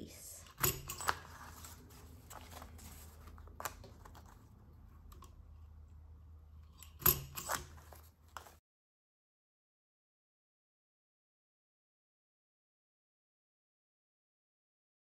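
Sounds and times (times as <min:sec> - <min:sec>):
paper handling rustle: 0:01.0 - 0:05.2, 0:07.5 - 0:08.6.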